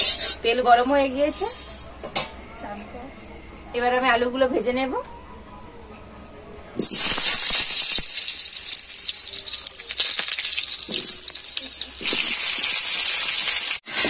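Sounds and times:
potatoes sizzling in hot oil: 0:06.8 - 0:14.0.

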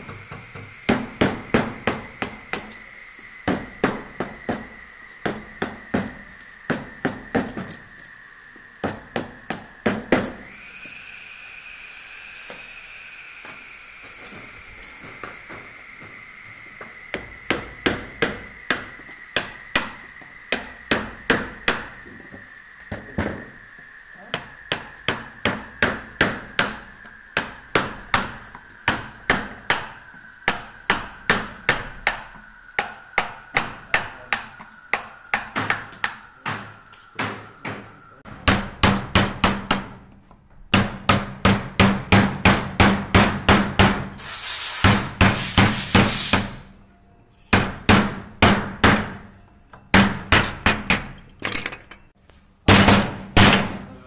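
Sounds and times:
mallet striking chisel into wood: 0:30.5 - 0:37.8, 0:38.4 - 0:40.0, 0:40.7 - 0:44.0, 0:47.5 - 0:49.2.

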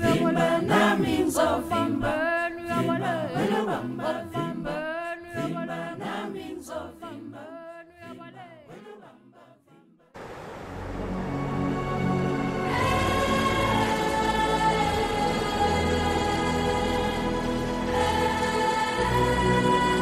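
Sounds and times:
women's choir singing in harmony: 0:00.0 - 0:10.1, 0:11.3 - 0:20.0
steady hiss with low hum: 0:10.2 - 0:11.8.

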